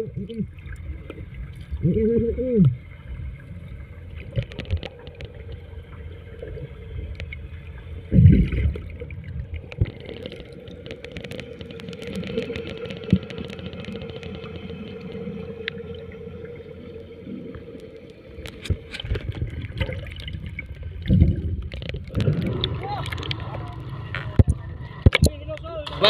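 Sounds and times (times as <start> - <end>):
water sloshing: 2.7 - 26.0
boat engine running: 22.1 - 26.0.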